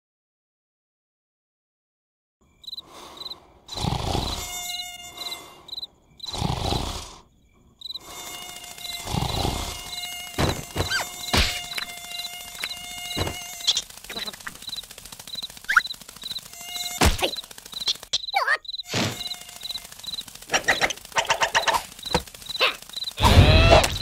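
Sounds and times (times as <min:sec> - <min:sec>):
crickets chirping: 0:02.4 - 0:24.0
mosquito whine: 0:02.6 - 0:24.0
cartoon character snoring: 0:03.7 - 0:04.5, 0:06.3 - 0:07.3, 0:09.0 - 0:09.9
sharp clicks: 0:10.3 - 0:24.0.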